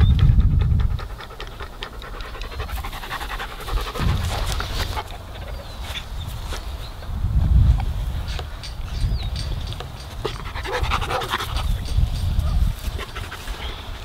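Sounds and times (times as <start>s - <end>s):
dog panting: 0.1s - 5.9s, 10.2s - 14.0s.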